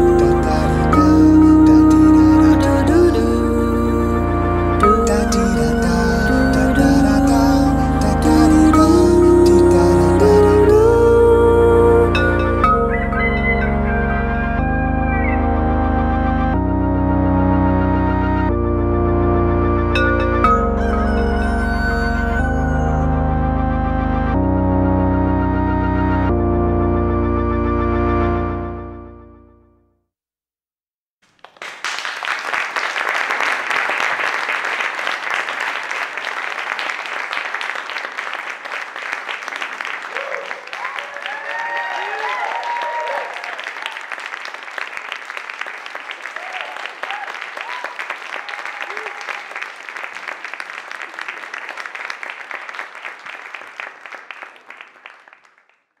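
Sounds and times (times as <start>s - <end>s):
audience applause: 31.3s - 55.9s.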